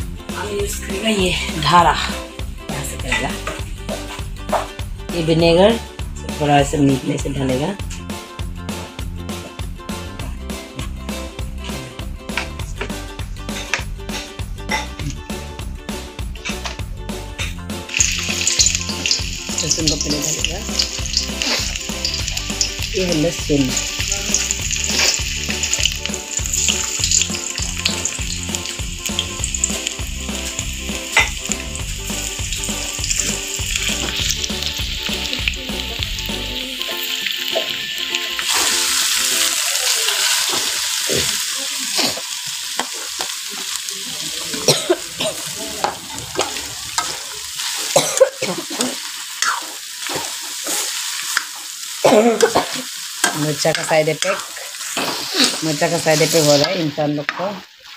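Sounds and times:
background music: 0.0s - 57.7s
garlic sizzling in hot oil: 17.4s - 57.9s
chicken frying in a wok: 17.9s - 57.9s
spatula scraping a wok: 45.3s - 48.0s, 50.1s - 51.4s, 52.6s - 57.9s.

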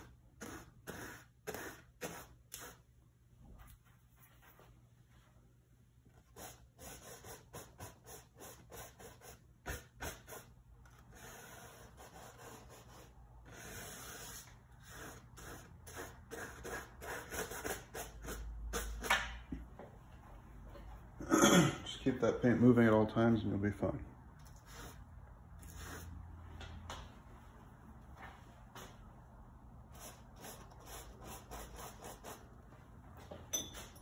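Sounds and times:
paintbrush scratching on canvas: 0.0s - 2.9s, 6.2s - 10.5s, 11.1s - 19.0s, 24.5s - 26.2s, 30.0s - 32.5s.

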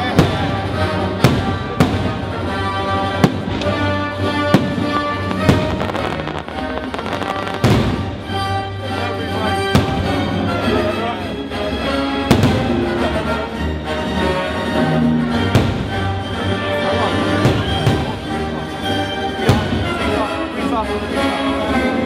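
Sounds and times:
firework bangs: 0.0s - 8.7s, 9.7s - 10.3s, 12.3s - 12.9s, 15.5s - 16.4s, 17.1s - 18.4s.

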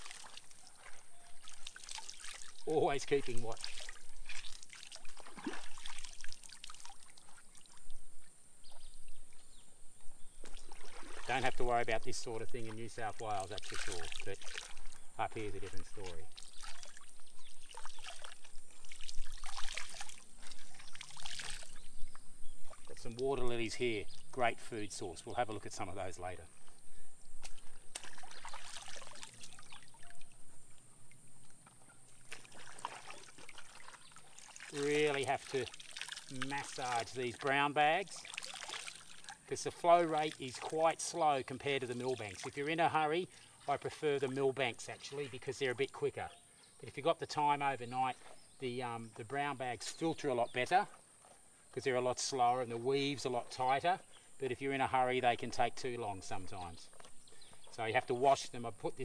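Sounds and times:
cloth sloshing in water: 0.0s - 7.9s, 10.4s - 21.9s, 27.4s - 30.2s, 31.8s - 42.9s
small splashes and trickles: 0.0s - 9.6s, 10.2s - 54.4s.

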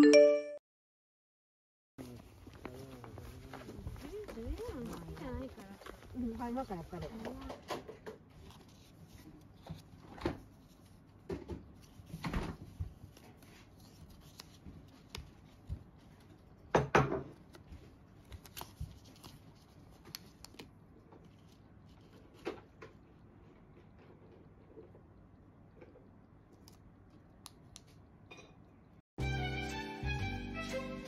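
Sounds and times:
paper rustling and crinkling: 2.0s - 16.7s, 17.3s - 23.0s.

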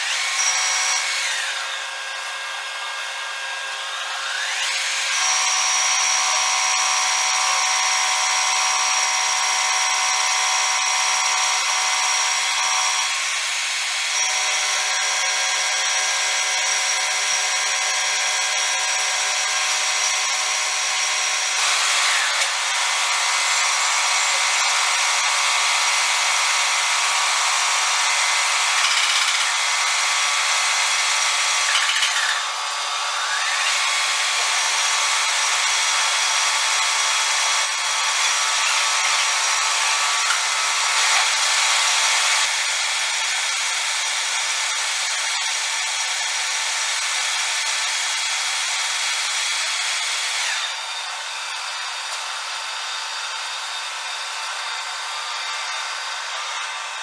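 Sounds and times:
metal lathe whine: 0.0s - 44.4s, 47.5s - 57.0s
cutting tool hiss: 27.2s - 43.0s.

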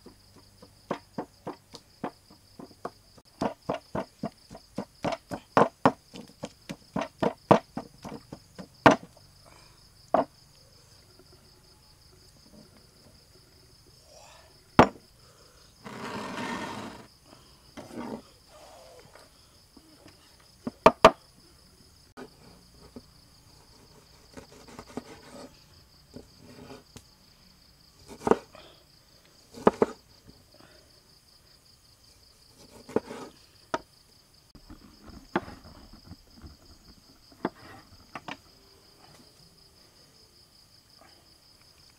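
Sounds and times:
crickets droning: 0.0s - 41.9s
knife knocking on wooden board: 14.8s - 15.0s.

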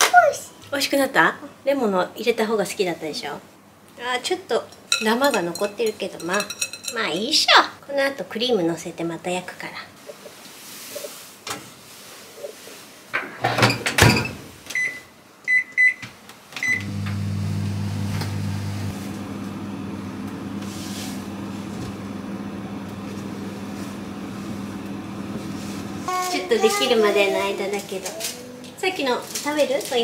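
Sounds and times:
short keypad beeps: 14.8s - 16.0s
oven humming: 16.7s - 27.6s.

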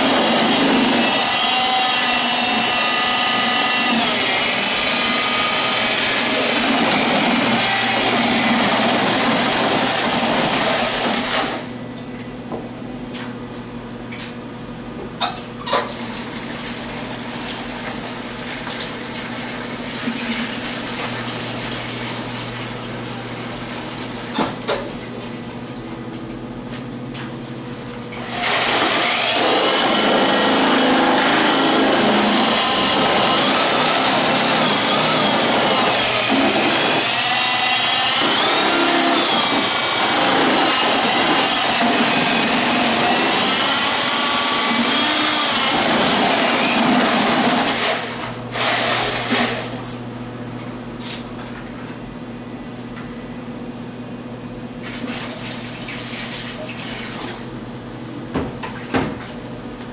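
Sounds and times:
electric drill mixer whine: 0.0s - 11.7s, 28.2s - 49.8s.

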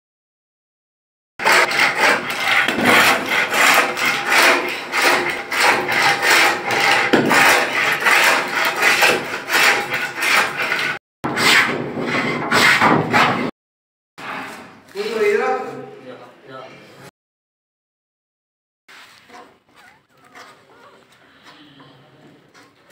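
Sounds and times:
hand plane shaving wood: 1.4s - 13.5s, 18.9s - 22.9s.

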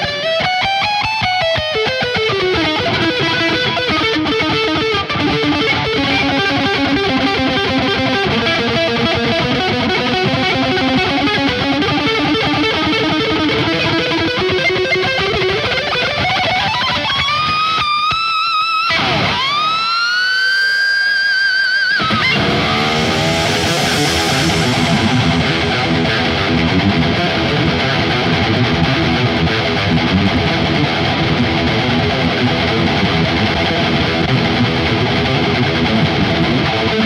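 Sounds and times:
electric guitar solo: 0.0s - 37.0s
band with bass drums and keyboard: 22.0s - 29.3s.

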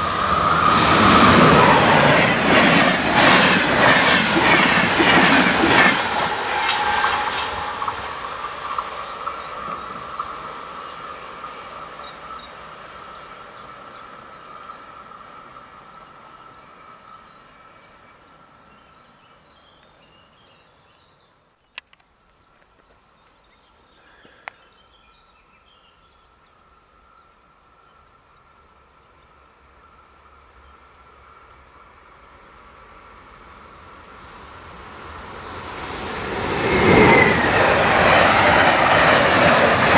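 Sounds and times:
train wheels on rails: 0.0s - 17.1s, 29.7s - 39.9s
insects: 3.2s - 39.9s.

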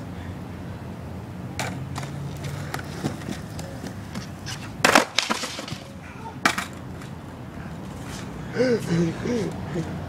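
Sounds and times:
skateboard knocks: 1.6s - 7.1s
skateboard clattering on concrete: 1.6s - 7.2s.

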